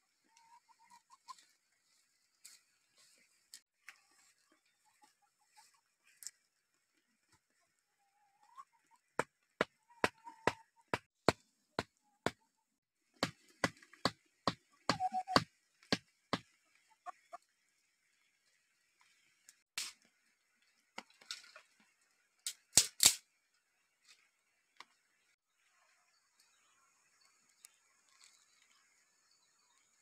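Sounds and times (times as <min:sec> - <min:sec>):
hens clucking: 0:00.1 - 0:01.6, 0:07.2 - 0:11.0, 0:14.9 - 0:15.4
bamboo being chopped: 0:13.2 - 0:16.5, 0:22.5 - 0:23.2.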